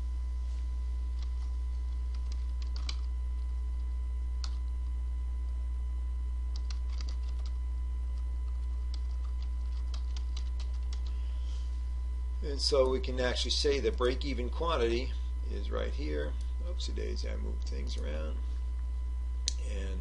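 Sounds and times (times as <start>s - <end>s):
steady low hum: 0.0s - 20.0s
keyboard and mouse clicks: 2.1s - 3.1s, 6.5s - 7.6s, 8.5s - 11.1s.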